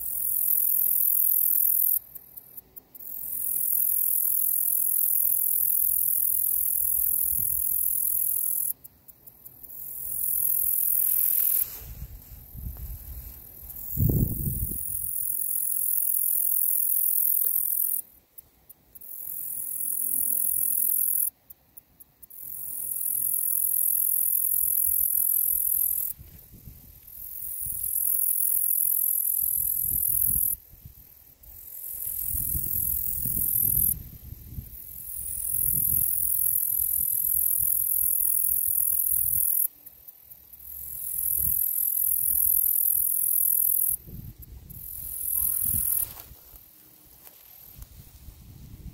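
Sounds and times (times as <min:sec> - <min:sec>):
katydid high-pitched buzzing: 0:00.0 - 0:21.4, 0:22.2 - 0:26.2, 0:27.0 - 0:46.6.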